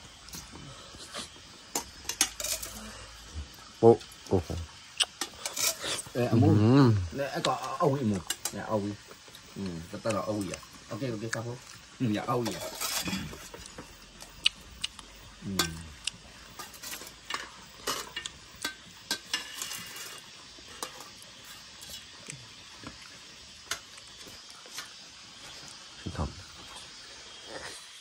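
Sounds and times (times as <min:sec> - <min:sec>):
dishes clinking: 0:01.7 - 0:02.8
metal spoon scraping a pot: 0:01.7 - 0:02.8, 0:05.1 - 0:06.2, 0:12.4 - 0:13.6, 0:16.5 - 0:21.2.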